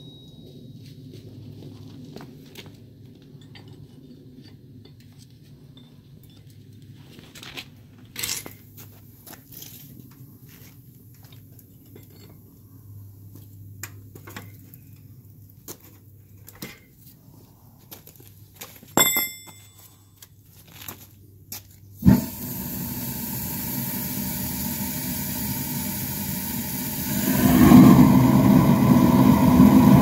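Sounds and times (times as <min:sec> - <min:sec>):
metal clanks and clinks: 0:03.4 - 0:05.1, 0:19.0 - 0:20.0
furnace burner hum: 0:22.0 - 0:30.0.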